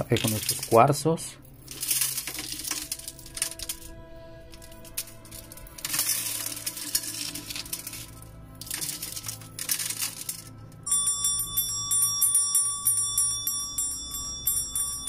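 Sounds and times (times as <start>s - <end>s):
crystals rattling and clinking: 0.0s - 15.0s
brass hand bell ringing: 10.8s - 15.0s.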